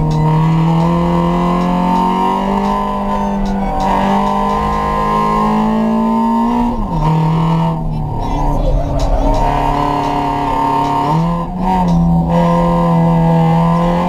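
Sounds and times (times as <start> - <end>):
car engine revving: 0.0 - 14.0.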